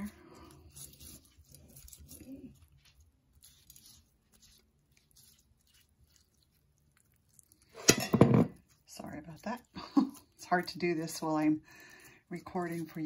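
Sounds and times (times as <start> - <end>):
basting brush dabbing wet sauce: 0.0 - 13.0.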